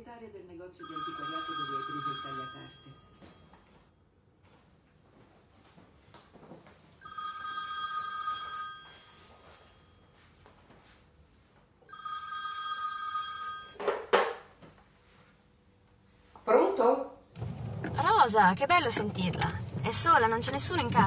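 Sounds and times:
telephone bell ringing: 0:00.8 - 0:04.0, 0:07.0 - 0:10.3, 0:11.9 - 0:13.8.

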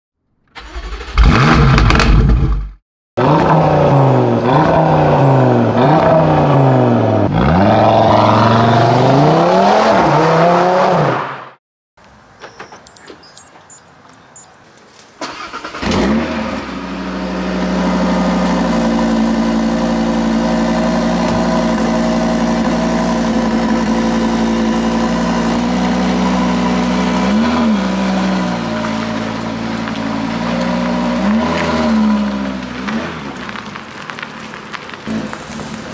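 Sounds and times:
car engine starting and idling: 0:00.5 - 0:02.7, 0:15.2 - 0:35.9.

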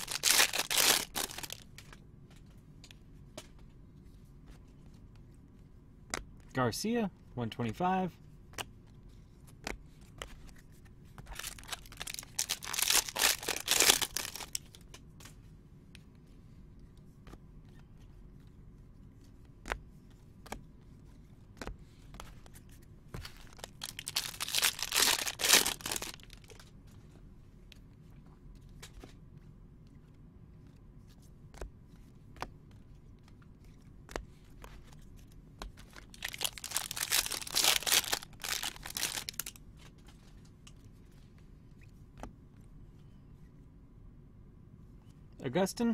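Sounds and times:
foil packs tearing and crinkling: 0:00.0 - 0:01.6, 0:11.3 - 0:14.6, 0:23.5 - 0:26.6, 0:36.0 - 0:39.6.

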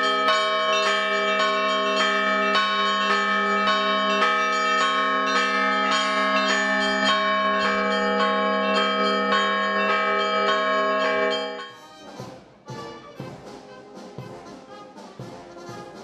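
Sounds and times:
deep bell hum: 0:00.0 - 0:11.8
church bells ringing: 0:00.0 - 0:13.1.

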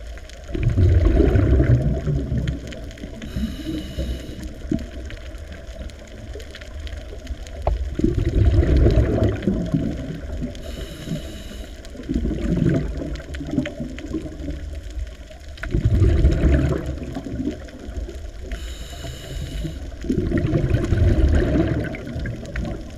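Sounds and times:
underwater exhaled bubbles gurgling: 0:00.0 - 0:22.9
regulator inhalation hiss: 0:03.2 - 0:04.6, 0:10.6 - 0:12.0, 0:18.5 - 0:19.9.

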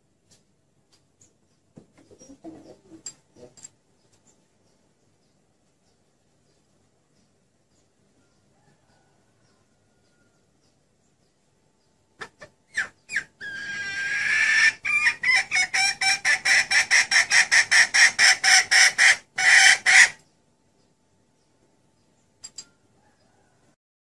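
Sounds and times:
hen clucking and cackling: 0:01.9 - 0:03.6, 0:12.1 - 0:20.3.

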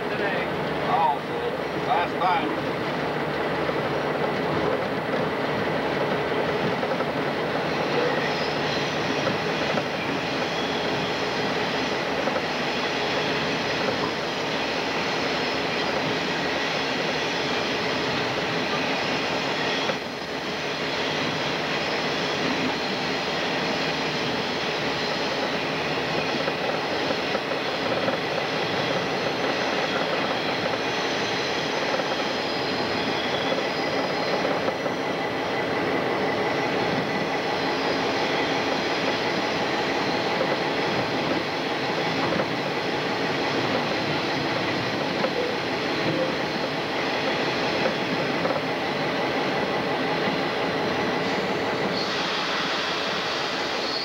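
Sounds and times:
locomotive engine and rail noise: 0:00.0 - 0:54.0
wheel squeal: 0:07.7 - 0:20.0, 0:20.8 - 0:35.1, 0:51.2 - 0:54.0.

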